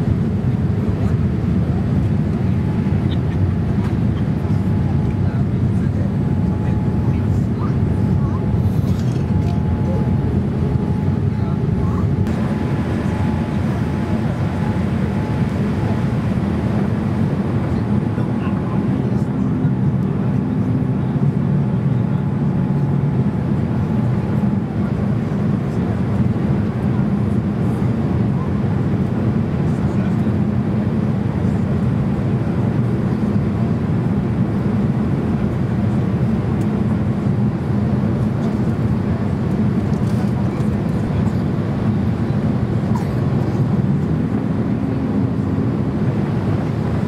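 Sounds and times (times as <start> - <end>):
airplane cabin engine rumble: 0.0 - 47.0
airflow noise: 5.2 - 19.5.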